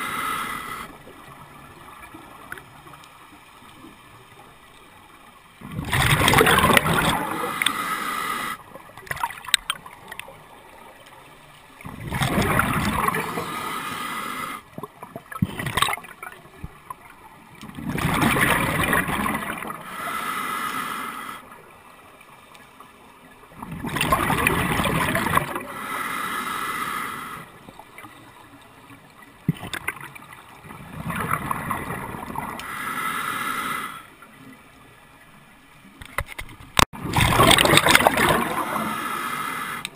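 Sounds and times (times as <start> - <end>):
diver breathing through regulator: 0.0 - 1.0, 7.1 - 8.7, 13.0 - 14.7, 19.7 - 21.6, 25.6 - 27.6, 32.5 - 34.2, 38.4 - 39.9
exhaled bubbles rushing: 5.6 - 7.5, 11.8 - 13.4, 17.7 - 19.8, 23.6 - 25.7, 29.5 - 32.6, 37.0 - 38.9.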